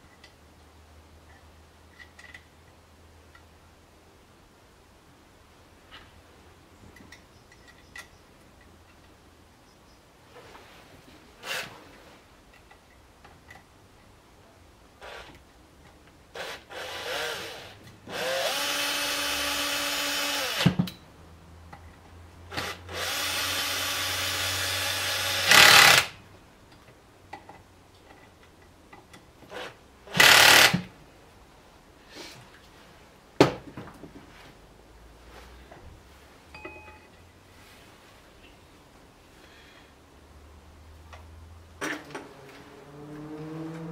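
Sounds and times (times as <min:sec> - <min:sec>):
cordless drill whining: 0:16.4 - 0:20.8, 0:22.5 - 0:26.2, 0:29.5 - 0:30.8.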